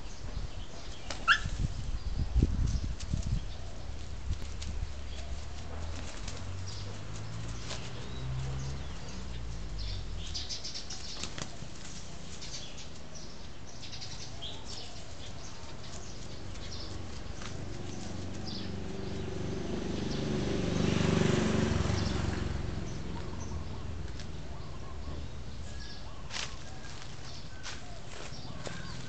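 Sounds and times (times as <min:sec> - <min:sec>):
chicken flapping wings: 0:04.0 - 0:08.5, 0:11.0 - 0:12.1
dog scuffling through dry leaves: 0:26.2 - 0:29.0.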